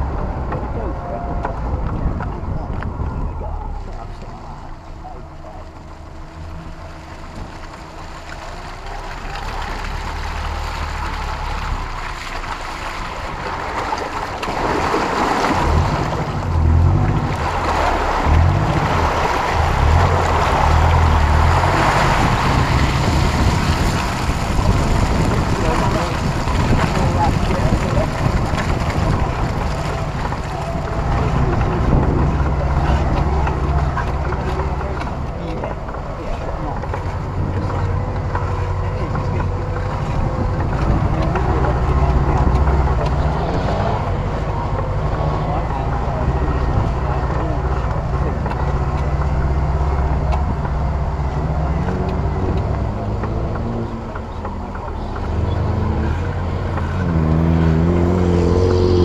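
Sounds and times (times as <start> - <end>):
muddy water splashing: 0.0 - 59.0
off-road vehicle engine: 0.0 - 59.0
wind buffeting microphone: 12.8 - 59.0.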